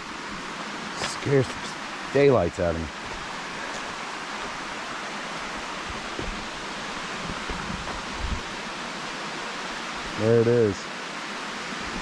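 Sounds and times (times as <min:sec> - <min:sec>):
waterfall rushing: 0:00.0 - 0:12.0
low bumps: 0:05.8 - 0:08.5.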